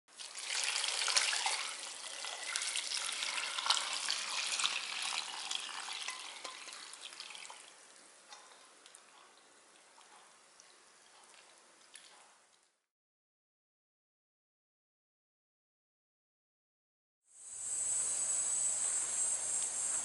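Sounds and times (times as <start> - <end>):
liquid pouring with crackling splash: 0.1 - 12.1.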